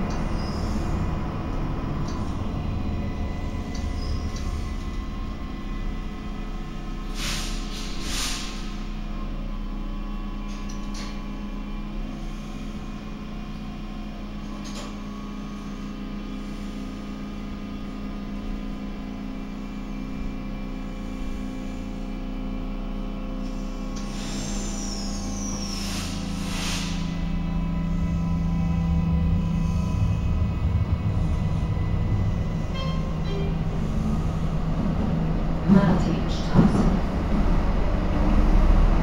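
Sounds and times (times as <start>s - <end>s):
train equipment humming: 0.0s - 39.0s
train motor hum: 0.0s - 39.0s
air hisses: 7.1s - 8.7s, 24.0s - 27.2s
falling squeal: 24.1s - 27.1s.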